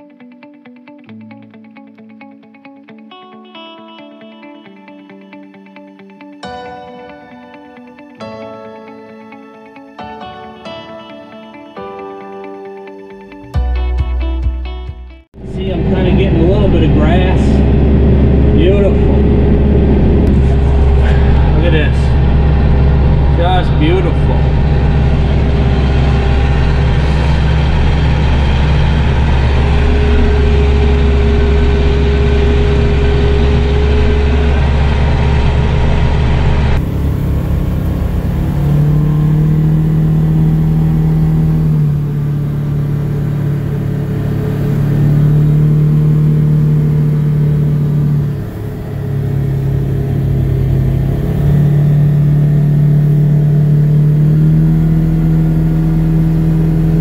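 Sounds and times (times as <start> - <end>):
tractor engine running: 15.4 - 57.0
vehicle engine revving while driving: 15.4 - 57.0.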